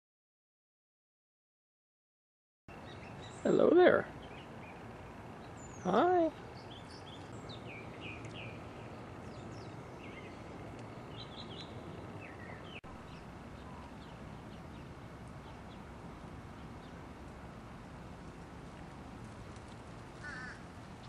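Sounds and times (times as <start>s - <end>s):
small birds chirping: 2.7s - 17.6s
outdoor background hum: 2.7s - 21.0s.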